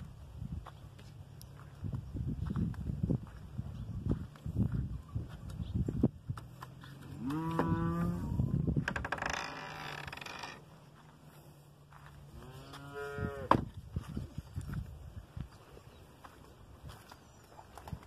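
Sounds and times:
cattle mooing: 7.1s - 8.4s, 12.4s - 13.5s.

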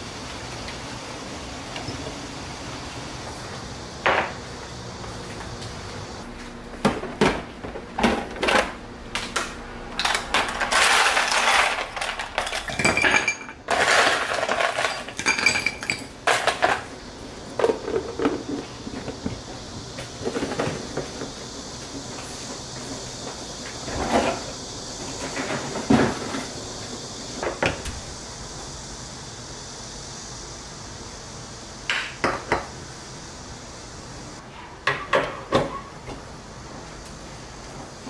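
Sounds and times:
ice cubes clinking in a glass: 10.0s - 16.5s.

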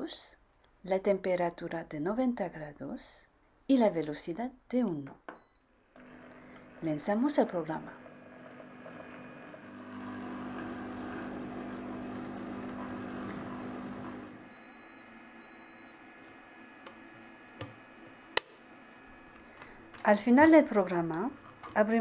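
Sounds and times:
kitchen robot motor hum: 6.0s - 22.0s.

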